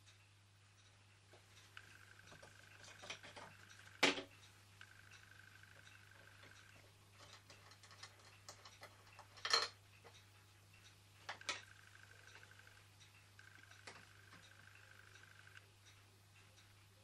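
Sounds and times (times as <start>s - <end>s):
metal parts clicking and tapping: 6.4s - 10.2s.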